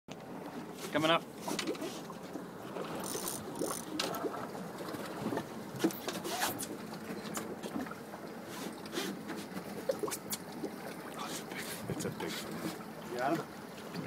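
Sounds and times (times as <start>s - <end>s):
water splashing against hull: 0.1s - 14.0s
fishing reel whirring: 2.9s - 4.2s.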